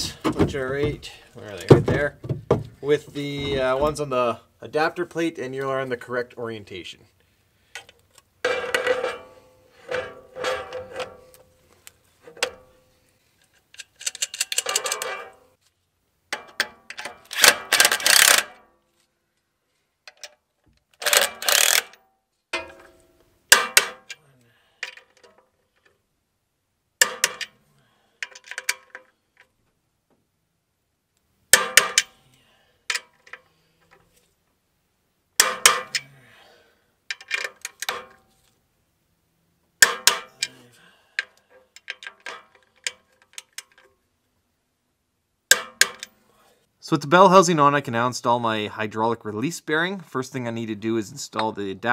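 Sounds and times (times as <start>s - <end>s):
socket ratchet clicking: 17.3s - 18.6s, 21.0s - 22.0s
metal tools clinking: 41.2s - 43.9s.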